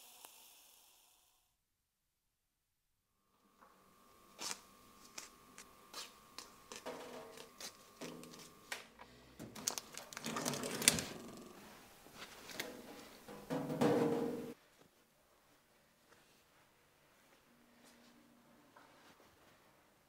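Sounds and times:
plastic film crinkling: 9.5s - 11.4s.

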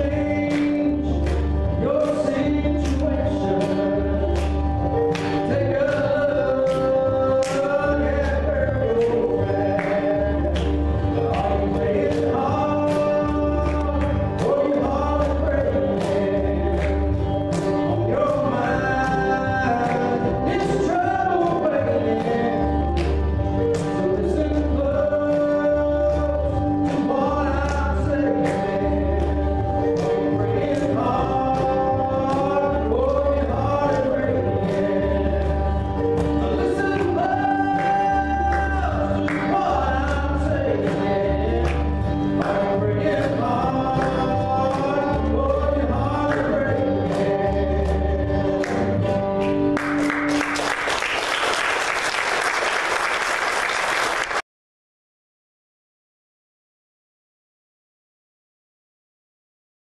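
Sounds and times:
man singing: 0.0s - 51.6s
acoustic guitar: 0.0s - 53.1s
applause: 0.5s - 9.2s, 9.8s - 18.4s, 22.9s - 24.0s, 37.0s - 42.5s, 48.6s - 54.5s.

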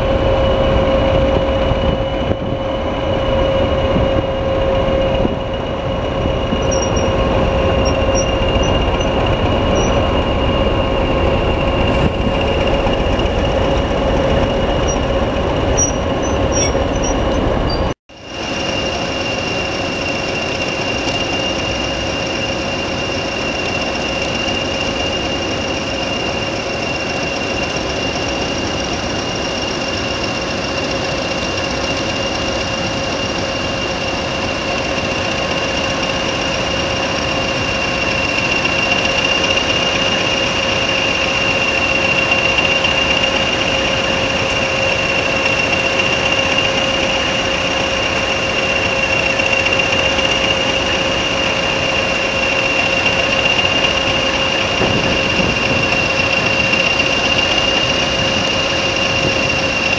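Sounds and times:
diesel locomotive whine and rumble: 0.0s - 59.9s.

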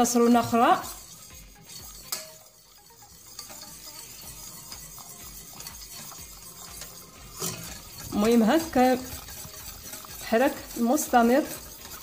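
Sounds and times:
whisk clinking against pan: 0.0s - 12.0s
whisk stirring in saucepan: 0.0s - 12.0s.

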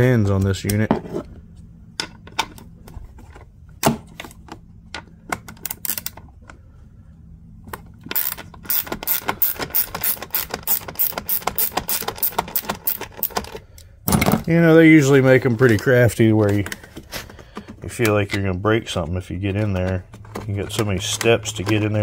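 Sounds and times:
ratchet clicking: 8.1s - 13.4s.

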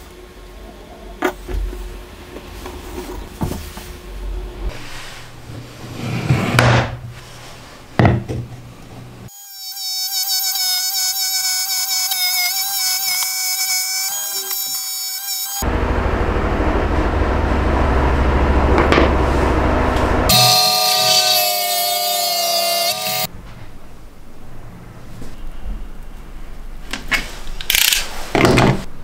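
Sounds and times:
wooden parts knocked on workbench: 8.0s - 8.5s
trim router whining: 19.9s - 23.3s.

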